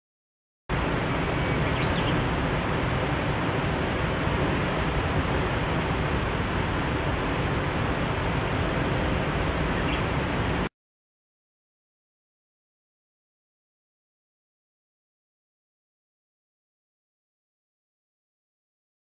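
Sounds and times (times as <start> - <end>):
river rushing over rocks: 0.7 - 10.7.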